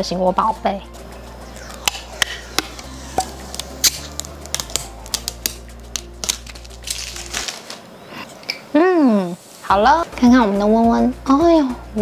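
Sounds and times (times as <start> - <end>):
plastic pieces clicking: 3.2 - 7.8.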